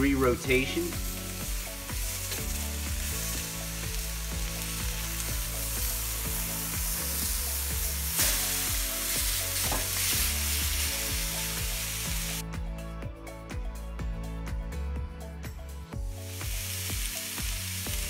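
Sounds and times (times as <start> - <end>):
background music with beat: 0.0 - 18.0
steaks sizzling on grill pan: 0.6 - 12.4, 16.1 - 18.0.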